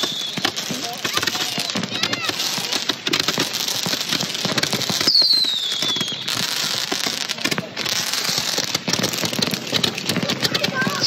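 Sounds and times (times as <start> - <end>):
falling firework whistle: 0.0 - 1.6, 4.6 - 6.9
firework hissing crackle: 0.0 - 11.0.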